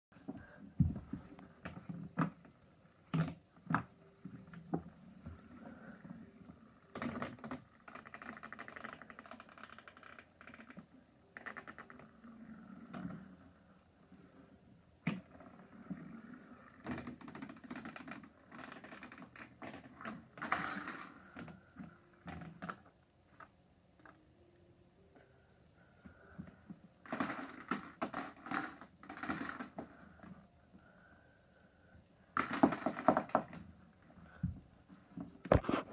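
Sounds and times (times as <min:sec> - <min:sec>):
fidget spinner rattling plastic parts: 0:15.9 - 0:24.2.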